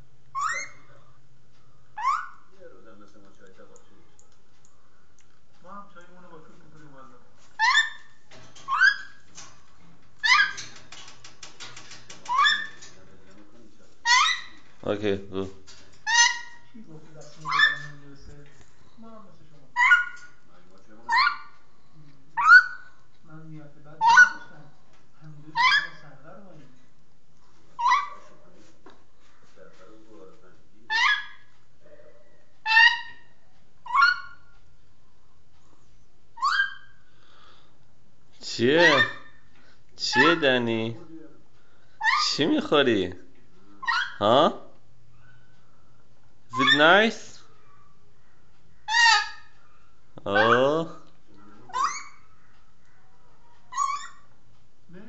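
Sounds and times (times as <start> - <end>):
parrot chick squawking: 0.3 - 0.9, 2.0 - 2.5, 7.6 - 9.3, 10.2 - 10.9, 11.7 - 13.0, 14.0 - 14.7, 16.0 - 16.8, 17.4 - 18.0, 19.8 - 20.4, 21.0 - 21.7, 22.4 - 23.0, 24.0 - 24.6, 25.5 - 26.0, 27.8 - 28.4, 30.9 - 31.5, 32.6 - 34.6, 36.4 - 37.0, 38.8 - 39.5, 40.1 - 40.8, 42.0 - 42.6, 43.8 - 44.4, 46.5 - 50.8, 51.7 - 52.6, 53.5 - 54.4
faint clicking: 3.0 - 6.2.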